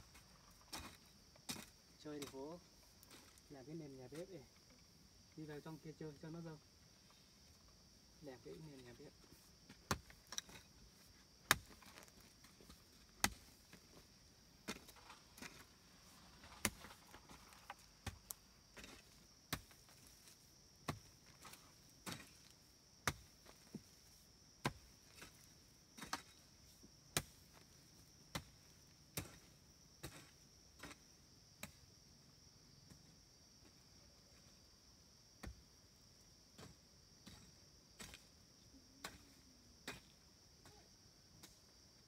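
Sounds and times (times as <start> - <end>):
hand tool chopping: 11.5 - 12.2, 16.5 - 19.8, 23.0 - 23.8.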